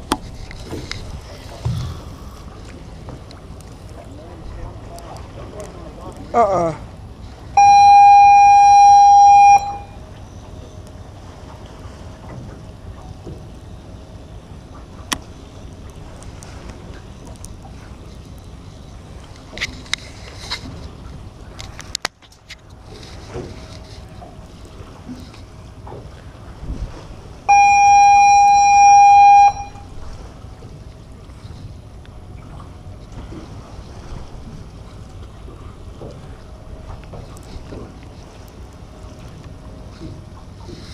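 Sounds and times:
water noise: 0.0 - 40.9
wind: 0.0 - 40.9
loud steady horn tone: 7.6 - 10.0, 27.5 - 30.0
loud horn blast: 27.5 - 29.9.

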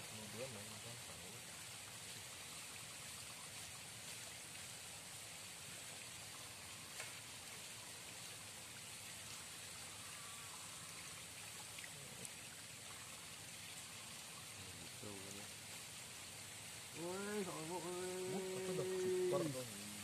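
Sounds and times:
river water flowing: 0.0 - 20.0
faint ticks: 6.7 - 7.4.

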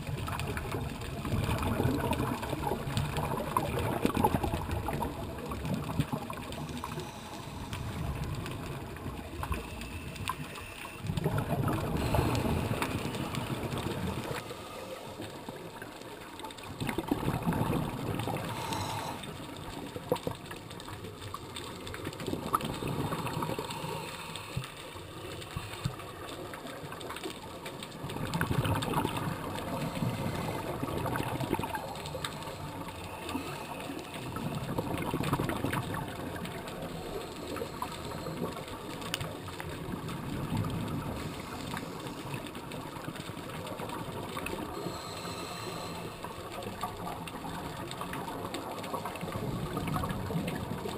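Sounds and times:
exhaled bubbles rumbling: 0.0 - 50.9
scuba regulator hiss: 44.8 - 46.3.

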